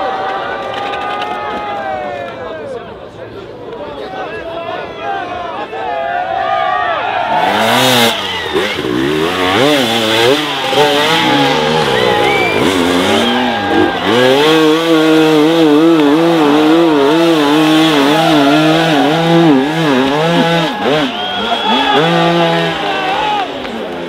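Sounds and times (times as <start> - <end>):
motorcycle engine revving: 7.3 - 24.0.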